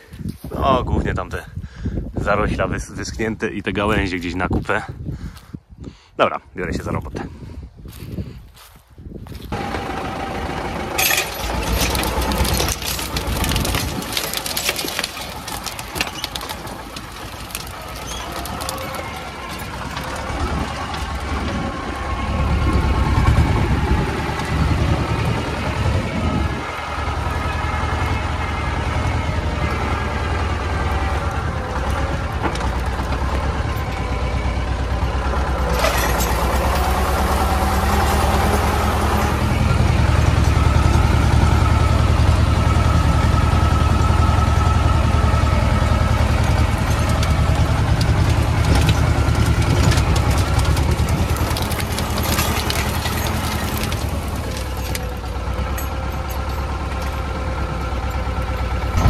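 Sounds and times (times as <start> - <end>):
tractor diesel engine running: 7.4 - 59.0
sharp metal clanks: 11.0 - 13.3.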